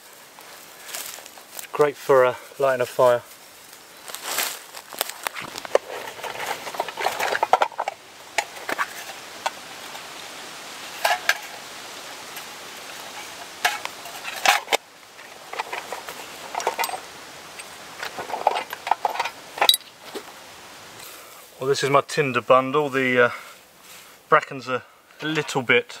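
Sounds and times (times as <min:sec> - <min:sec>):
leather pouch rustling: 0:03.3 - 0:07.6.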